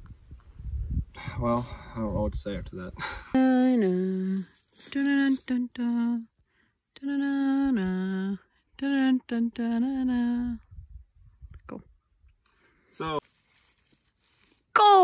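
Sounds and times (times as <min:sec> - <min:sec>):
person humming: 0:07.0 - 0:10.6.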